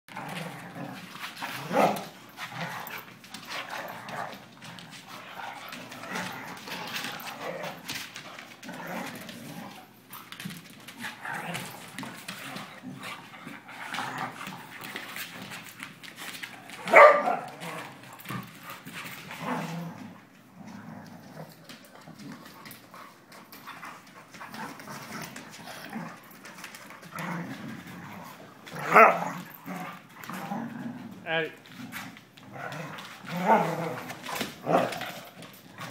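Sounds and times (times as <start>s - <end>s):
dogs growling: 0.1s - 35.9s
dog barking loudly: 16.9s - 17.4s.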